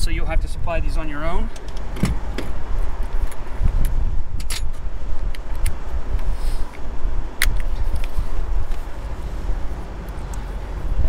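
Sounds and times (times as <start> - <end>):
wind rumble on microphone: 0.0 - 11.0
light metallic clicks and rattles: 1.5 - 2.5.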